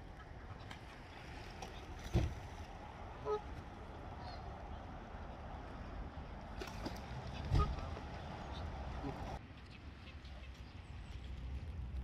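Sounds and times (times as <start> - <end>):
waterfowl call: 3.2 - 3.5.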